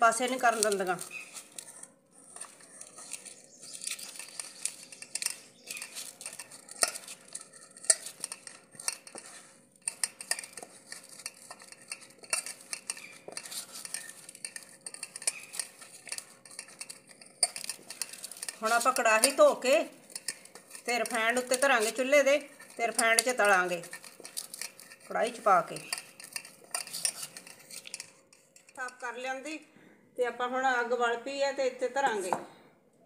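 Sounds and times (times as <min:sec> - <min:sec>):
hands squeezing soft mash: 0:00.3 - 0:28.8.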